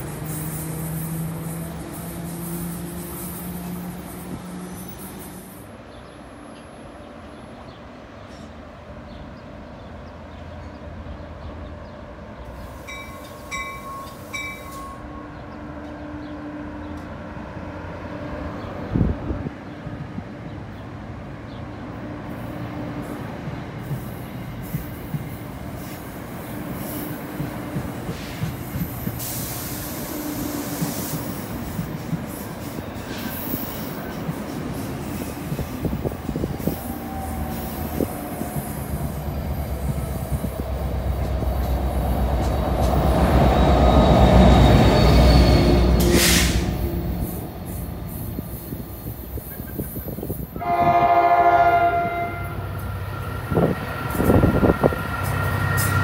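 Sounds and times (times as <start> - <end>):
train rumble and hum: 0.0 - 56.0
train wheels thumping over rail: 27.0 - 30.0
train horn blast: 50.6 - 55.0.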